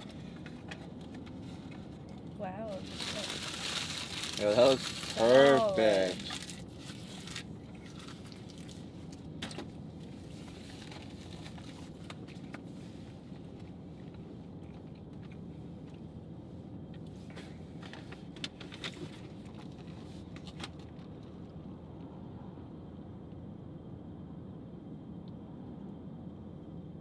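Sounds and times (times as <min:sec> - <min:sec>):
low rumble inside car cabin: 0:00.0 - 0:27.0
paper wrappers crinkling: 0:02.8 - 0:08.8.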